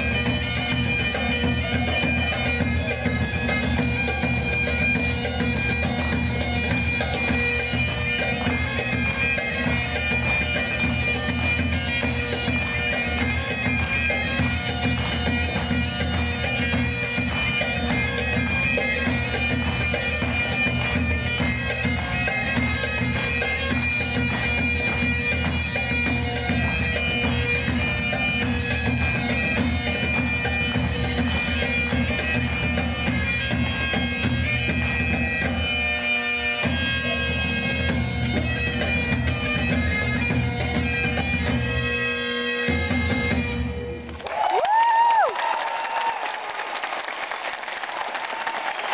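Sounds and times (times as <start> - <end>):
bagpipes playing a dance tune: 0.0 - 44.2.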